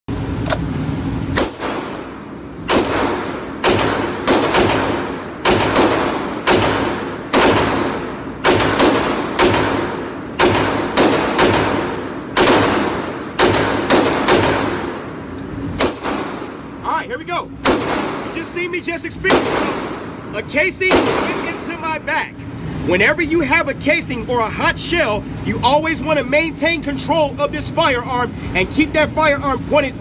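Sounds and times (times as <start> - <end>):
pistol shots with reverberation: 1.3 - 16.8, 17.6 - 18.4, 19.3 - 20.2, 20.9 - 21.6.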